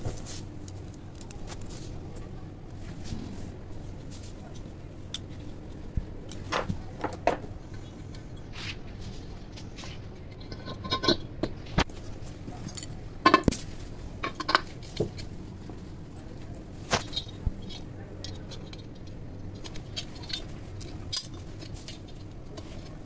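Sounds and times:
metal parts clinking and knocking: 10.4s - 11.3s, 14.2s - 15.2s, 17.0s - 22.9s.

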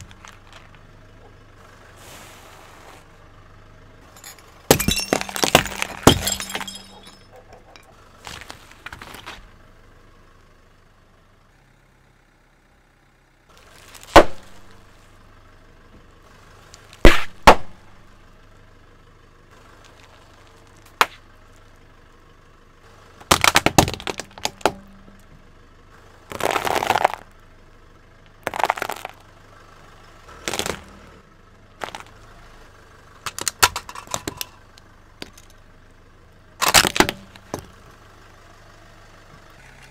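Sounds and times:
glass bottles breaking: 4.1s - 7.9s, 33.3s - 35.5s
plastic cracking and crunching: 23.3s - 24.8s, 26.3s - 27.2s, 28.4s - 29.2s, 30.5s - 30.9s.

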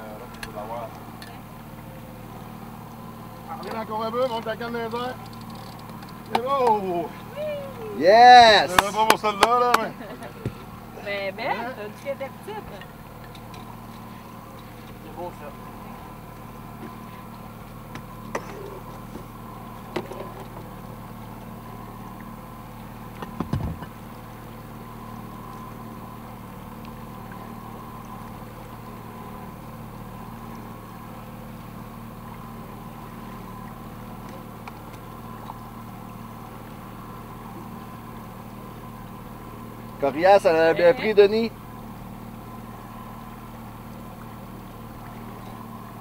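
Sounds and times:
outboard motor idling: 0.0s - 46.0s
knocks against boat: 5.8s - 6.8s, 8.7s - 10.7s, 17.9s - 20.7s, 23.1s - 24.0s.

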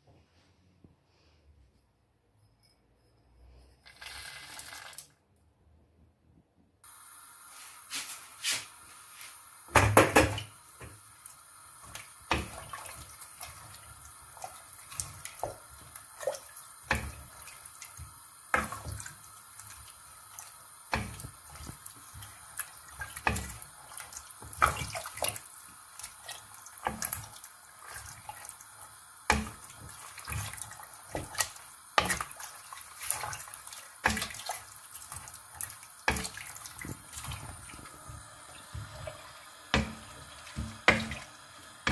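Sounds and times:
wooden spoon knocking on pot: 9.7s - 11.0s, 20.9s - 21.8s, 23.2s - 23.6s, 29.3s - 32.4s, 36.0s - 41.9s
liquid sloshing: 11.8s - 41.9s.

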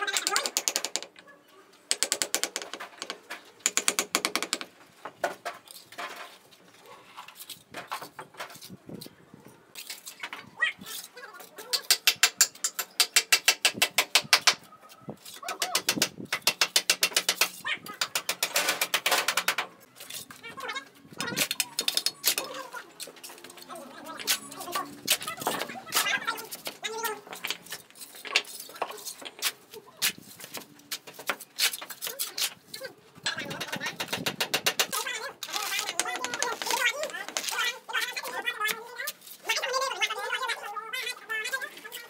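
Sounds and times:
bricks tapped into mortar: 11.7s - 14.6s, 15.5s - 19.6s.

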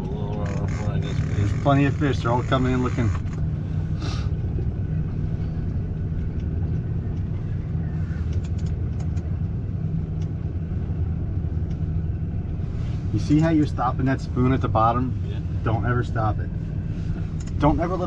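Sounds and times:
boat engine idling: 0.0s - 18.0s.

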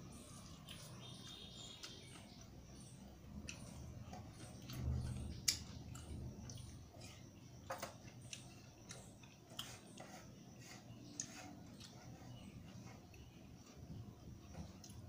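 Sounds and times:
person chewing: 0.2s - 2.5s, 3.3s - 7.4s.

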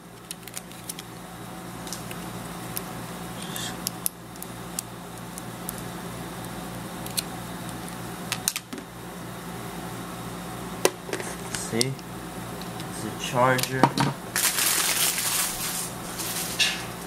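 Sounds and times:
cable rustling: 0.0s - 1.2s, 14.3s - 17.0s
steady low hum: 0.0s - 17.0s.

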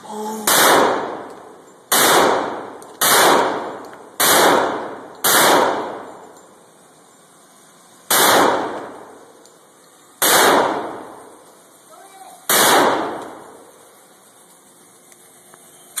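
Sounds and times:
pistol shots ringing indoors: 1.9s - 6.1s, 8.1s - 9.1s, 10.2s - 11.0s, 12.5s - 13.4s.

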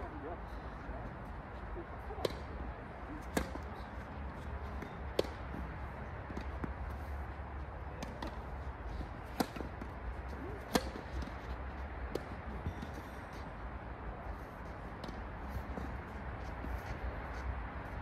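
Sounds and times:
tennis ball struck by rackets: 3.2s - 3.8s, 4.7s - 5.7s, 8.0s - 8.5s, 9.2s - 11.4s.

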